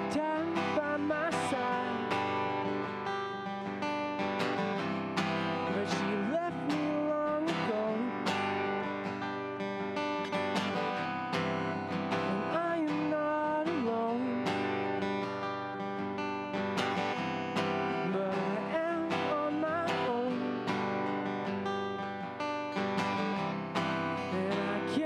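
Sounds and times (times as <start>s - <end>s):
man singing: 0.0s - 2.8s, 5.6s - 8.6s, 12.1s - 14.8s, 17.9s - 21.1s, 24.2s - 25.0s
acoustic guitar strumming: 0.0s - 25.0s.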